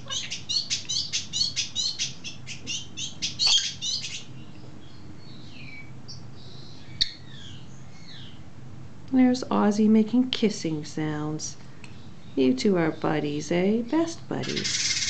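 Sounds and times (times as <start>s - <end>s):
budgerigar chirping: 0.0s - 4.3s, 14.4s - 15.0s.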